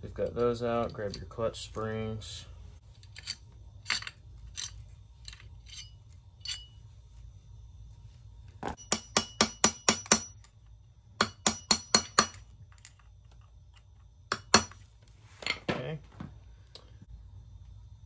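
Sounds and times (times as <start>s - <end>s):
small metal parts clinking: 2.8s - 10.7s, 11.3s - 14.8s
hammer tapping on metal: 8.8s - 10.4s, 11.2s - 12.4s.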